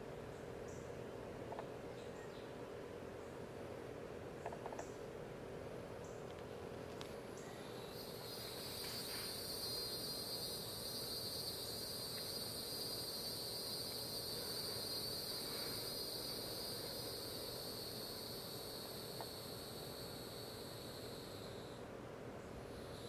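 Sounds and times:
faint outdoor background hiss: 0:00.0 - 0:23.0
insect high-pitched trill: 0:07.4 - 0:21.9, 0:22.7 - 0:23.0.

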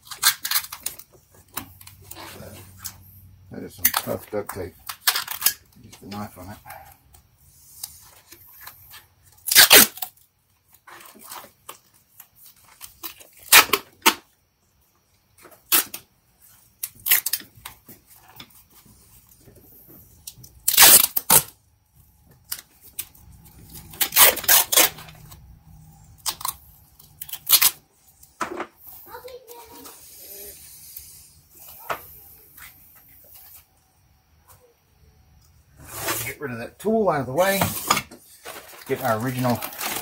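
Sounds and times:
duct tape ripping: 0:00.0 - 0:02.9, 0:04.8 - 0:05.6, 0:08.6 - 0:11.8, 0:12.4 - 0:14.3, 0:15.5 - 0:16.1, 0:16.8 - 0:17.8, 0:20.6 - 0:21.6, 0:22.5 - 0:25.4, 0:26.2 - 0:27.8
tape rustling: 0:00.0 - 0:34.7, 0:35.4 - 0:40.0.

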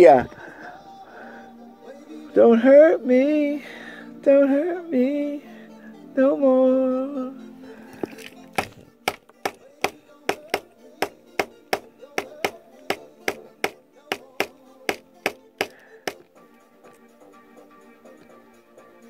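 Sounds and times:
faint music: 0:00.0 - 0:19.0
sharp taps in even beat: 0:08.6 - 0:16.2.

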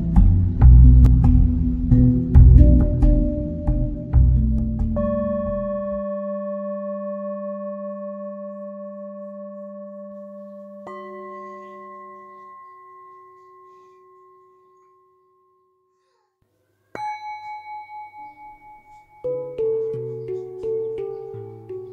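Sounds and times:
higher-pitched bell struck: 0:04.6 - 0:15.9, 0:17.0 - 0:20.2
struck bell ringing: 0:17.0 - 0:20.3.

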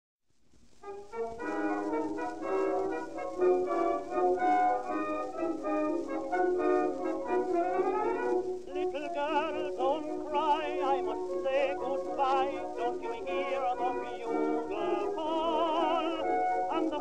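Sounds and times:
small orchestra accompaniment: 0:00.8 - 0:17.0
tenor voice singing with vibrato: 0:08.7 - 0:17.0.

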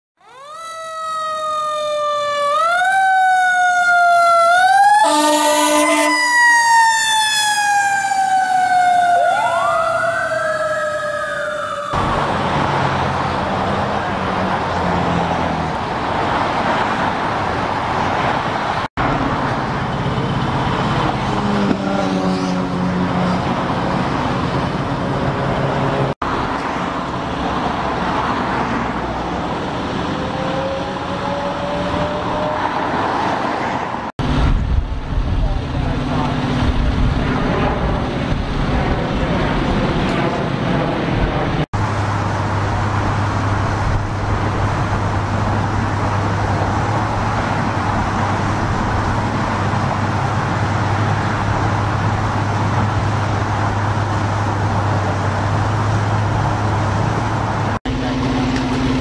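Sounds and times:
siren wailing: 0:00.2 - 0:14.1, 0:30.1 - 0:33.0
freeway traffic noise: 0:00.2 - 0:59.0
engine running: 0:07.4 - 0:33.0, 0:34.2 - 0:59.0.

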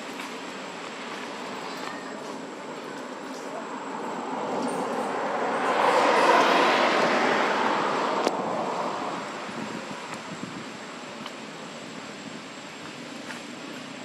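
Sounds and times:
car driving past: 0:03.9 - 0:09.6.

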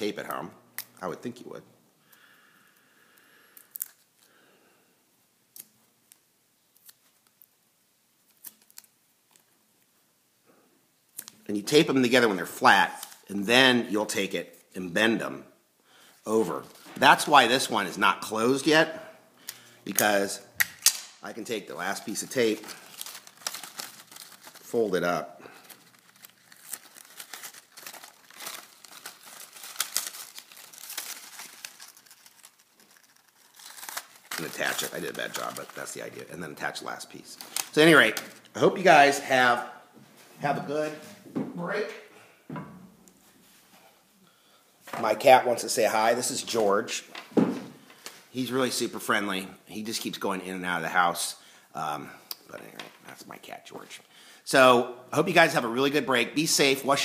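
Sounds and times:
sticky tape tearing and crackling: 0:08.2 - 0:09.5, 0:22.4 - 0:24.8, 0:25.6 - 0:36.2, 0:37.3 - 0:38.5
paper rustling and crinkling: 0:22.1 - 0:36.3.

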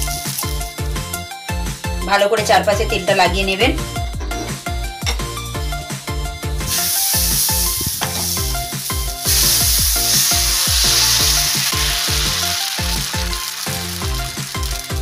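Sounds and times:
batter sizzling on hot griddle: 0:00.0 - 0:00.8, 0:06.7 - 0:15.0
background music with beat: 0:00.0 - 0:15.0.

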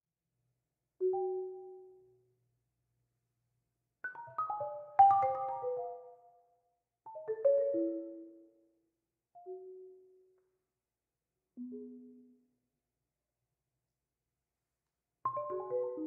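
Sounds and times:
marimba played with mallets: 0:04.1 - 0:06.2.

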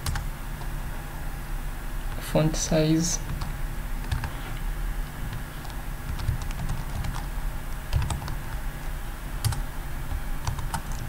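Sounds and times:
steady low hum: 0:00.0 - 0:11.0
typing on computer keyboard: 0:05.3 - 0:07.2, 0:07.9 - 0:08.4, 0:10.4 - 0:11.0.

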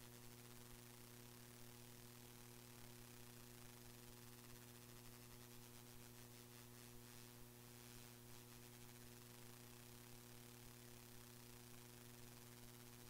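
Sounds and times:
faint electrical hum with hiss: 0:00.0 - 0:13.0.

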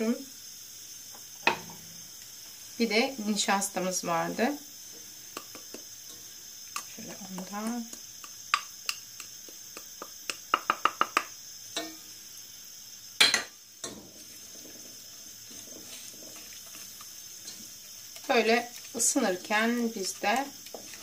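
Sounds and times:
faint stirring in pot: 0:01.2 - 0:12.6, 0:13.2 - 0:21.0
wooden spoon tapping on bowl: 0:06.8 - 0:11.3
spoon knocking: 0:06.8 - 0:12.0.

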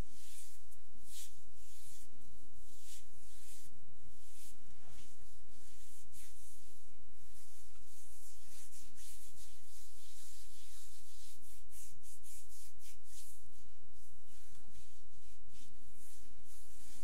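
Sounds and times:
palms rubbing on skin: 0:00.1 - 0:17.0.

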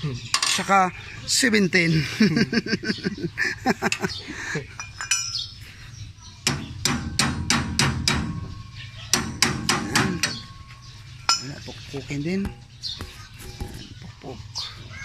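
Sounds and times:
hammer striking steel: 0:06.5 - 0:10.5.

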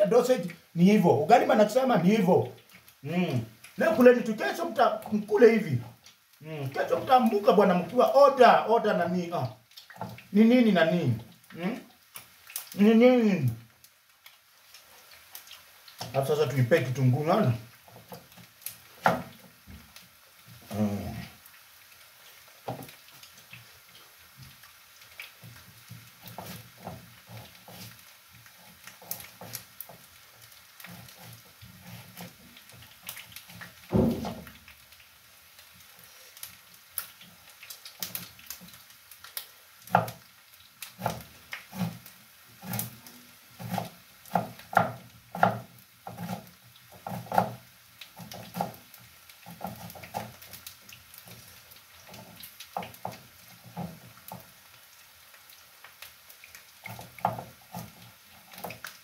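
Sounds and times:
knife knock: 0:33.9 - 0:34.5.

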